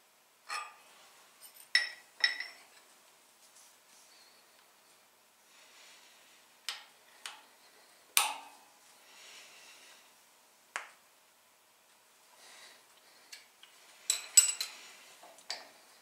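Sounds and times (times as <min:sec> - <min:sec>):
metal tools clinking on table: 0:01.4 - 0:02.8, 0:14.1 - 0:14.8.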